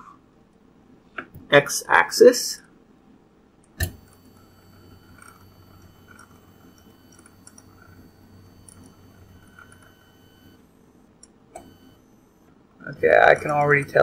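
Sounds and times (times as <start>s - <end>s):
steady low hum: 0.0s - 14.0s
stepper motor whine: 3.8s - 14.0s.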